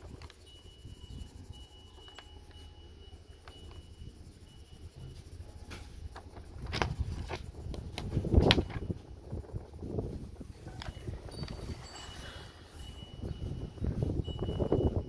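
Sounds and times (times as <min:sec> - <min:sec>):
colored pencil scratching on paper: 0:00.0 - 0:08.4.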